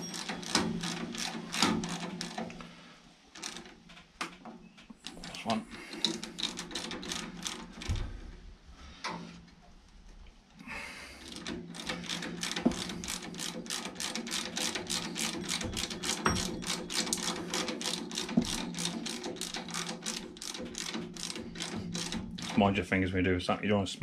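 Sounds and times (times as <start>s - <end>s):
chain and sprocket clicking: 0.0s - 2.6s, 5.0s - 8.0s, 11.2s - 22.6s.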